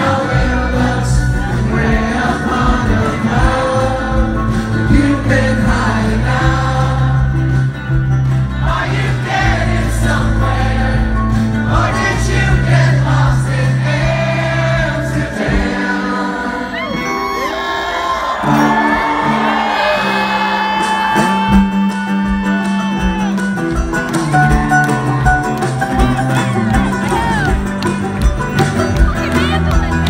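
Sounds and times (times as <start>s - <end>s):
man singing lead vocals: 0.0s - 7.6s
audience singing along: 0.0s - 21.5s
live rock band playing: 0.0s - 30.0s
crowd whooping: 16.5s - 27.7s.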